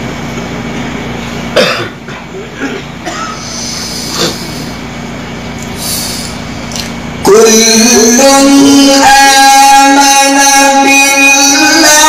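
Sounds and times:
sound system hum: 0.0s - 12.0s
person coughing into microphone: 1.5s - 4.7s.

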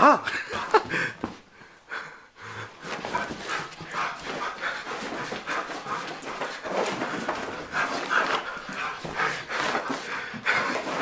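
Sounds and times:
dog panting: 2.8s - 11.0s.

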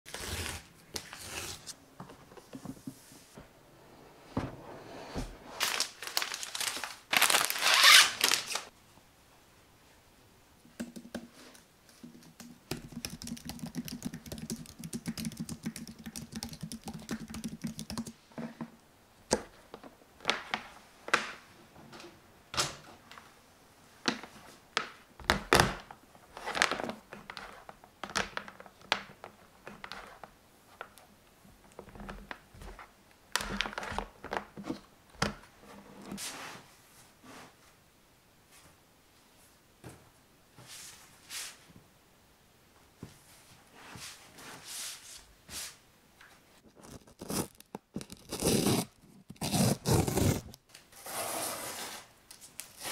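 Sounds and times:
paper and plastic rustling: 5.5s - 8.7s, 26.3s - 30.9s
typing on keyboard: 12.2s - 18.2s.

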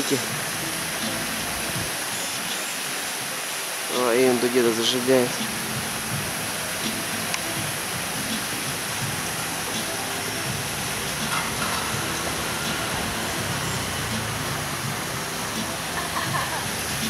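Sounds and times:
rushing water: 0.0s - 17.0s
scooter engine passing: 10.4s - 17.0s.

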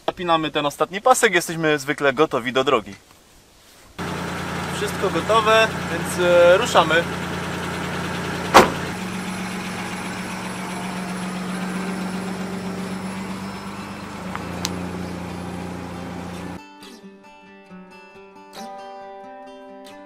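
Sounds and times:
car engine running: 4.0s - 16.6s
car door slamming: 8.2s - 9.6s.

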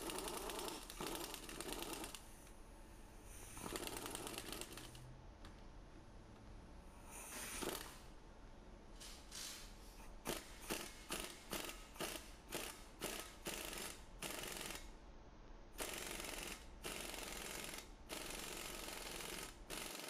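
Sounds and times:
air impact wrench bursts: 0.0s - 2.2s, 3.3s - 5.0s, 7.0s - 8.0s, 9.3s - 14.9s, 15.8s - 20.0s.

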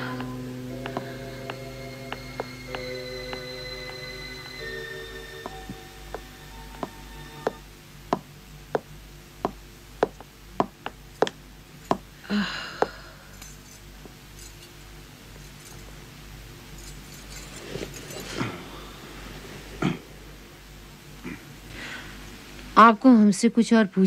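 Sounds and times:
footsteps on hard floor: 0.0s - 12.1s.

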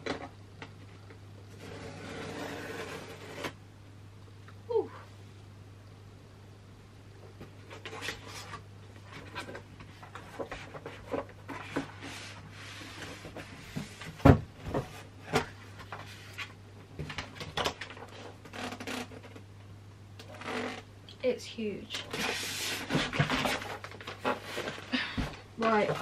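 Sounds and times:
cardboard scraping and rubbing: 1.5s - 3.6s, 7.7s - 16.5s, 22.1s - 24.8s
cardboard thump: 14.2s - 15.5s.

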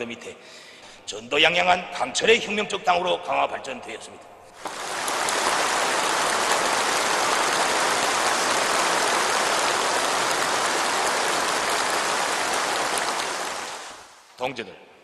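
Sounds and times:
large crowd applauding: 4.6s - 14.2s.

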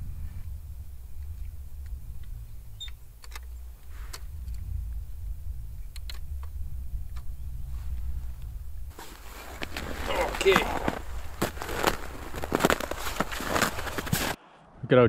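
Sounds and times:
steady low rumble: 0.0s - 14.4s.

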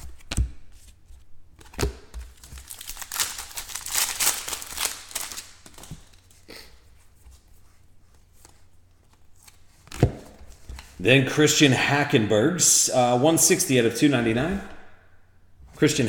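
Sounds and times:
card packaging crinkling: 2.2s - 6.4s.

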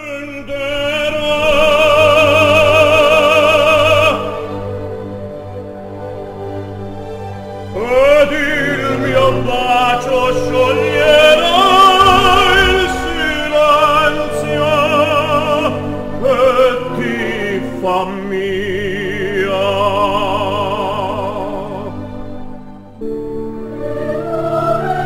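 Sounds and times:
musical accompaniment: 0.0s - 25.0s
operatic solo singing: 7.7s - 22.1s.

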